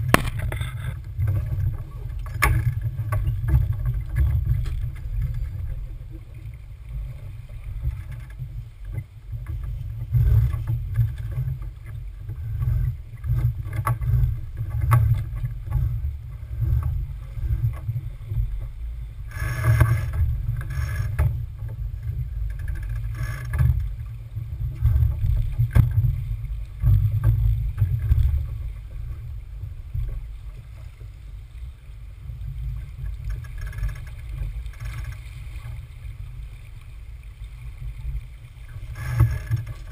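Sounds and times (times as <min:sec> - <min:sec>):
boat gear knocking and clicking: 0:00.0 - 0:05.5
wind and water rumbling on boat: 0:00.0 - 0:39.9.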